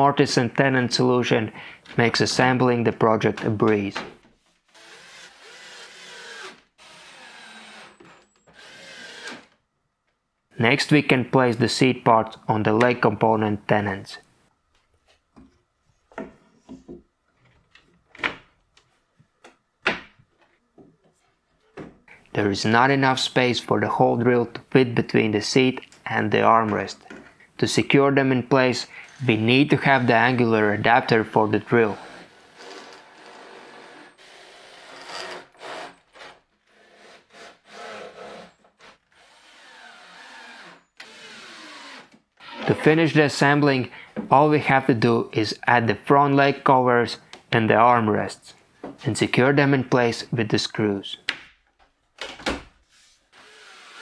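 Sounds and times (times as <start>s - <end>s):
cordless drill driving screws: 4.7s - 9.6s, 32.0s - 42.7s, 53.3s - 54.0s.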